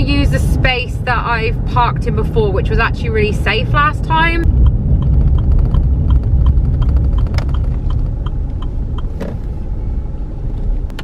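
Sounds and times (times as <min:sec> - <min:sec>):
car engine and tyre rumble: 0:00.0 - 0:11.0
steady light ticking: 0:04.4 - 0:09.2.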